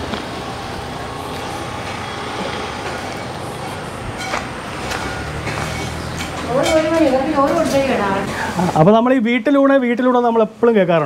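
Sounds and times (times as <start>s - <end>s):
road traffic rushing: 0.0s - 9.0s
footsteps on gravel: 2.4s - 7.2s.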